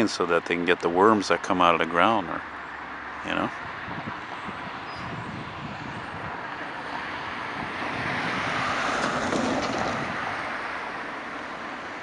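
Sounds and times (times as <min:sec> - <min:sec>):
car passing by: 0:03.8 - 0:12.0.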